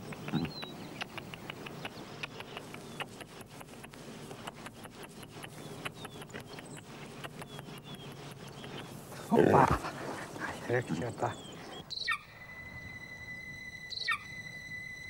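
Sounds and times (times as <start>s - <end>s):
faint high bird chirps: 5.1s - 9.0s, 11.2s - 15.0s.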